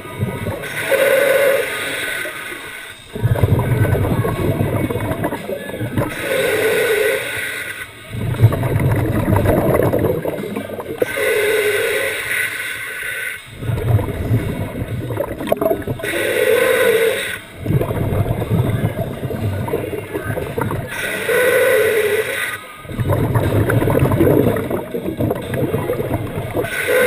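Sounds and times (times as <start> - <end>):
exhaled air bubbling: 0.0 - 27.0
regulator inhale hiss: 0.6 - 3.2, 6.1 - 8.0, 11.0 - 14.0, 16.0 - 17.6, 20.9 - 22.7.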